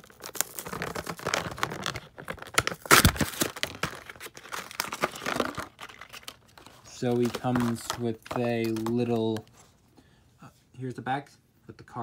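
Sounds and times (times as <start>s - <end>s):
plastic blister pack tearing: 0.0s - 9.4s.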